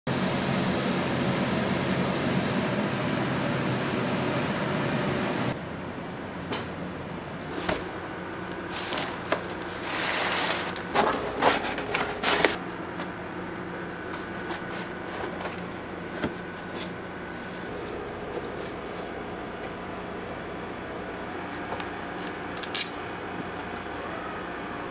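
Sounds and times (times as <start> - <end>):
plastic liner rustling: 8.6 - 12.6.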